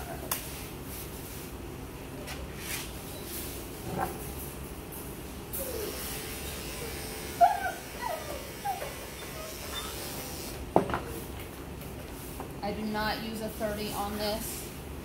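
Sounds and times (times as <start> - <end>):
dog whining: 5.5 - 6.1, 6.7 - 10.3
electric clippers running: 5.7 - 10.6.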